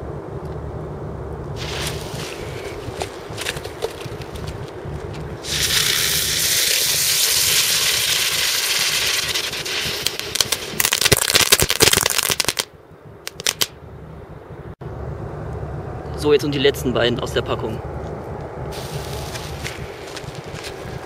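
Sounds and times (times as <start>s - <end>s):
fireworks hissing sparks: 1.6s - 2.8s, 5.4s - 12.7s, 18.8s - 19.8s
fireworks crackling pops: 1.6s - 4.6s, 5.4s - 13.8s.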